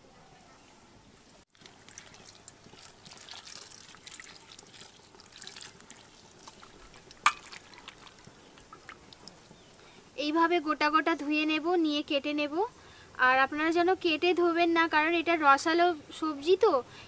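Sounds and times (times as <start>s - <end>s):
water pouring into steel bowl: 1.5s - 9.5s
hands sloshing vegetables in water: 1.5s - 9.6s.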